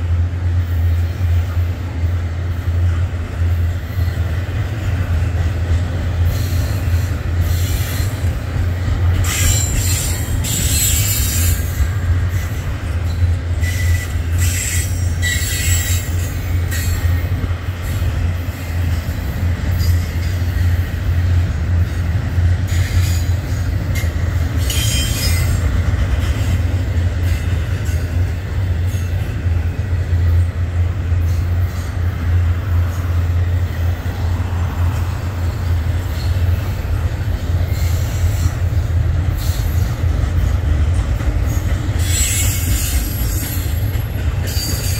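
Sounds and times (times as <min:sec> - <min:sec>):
freight train rumbling past: 0:00.0 - 0:44.9
wheel squeal: 0:09.2 - 0:11.8, 0:13.1 - 0:17.0, 0:24.6 - 0:25.6.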